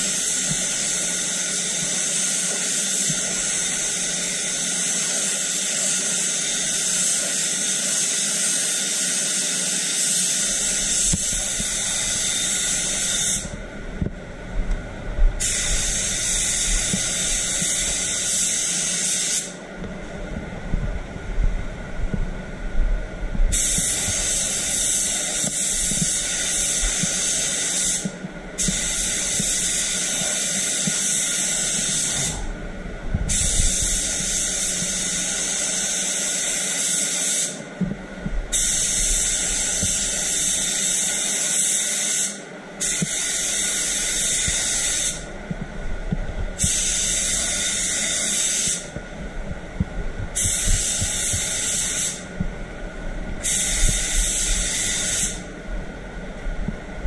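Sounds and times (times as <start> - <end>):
paint spray gun hissing: 0.0 - 13.6, 15.4 - 19.6, 23.5 - 32.4, 33.3 - 37.6, 38.5 - 45.3, 46.6 - 48.9, 50.4 - 52.3, 53.4 - 55.5.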